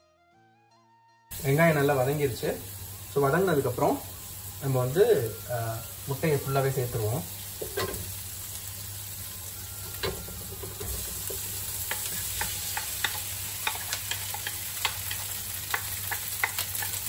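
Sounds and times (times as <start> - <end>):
rice sizzling in a wok: 1.3 - 17.0
wooden spatula scraping and clicking: 10.8 - 17.0.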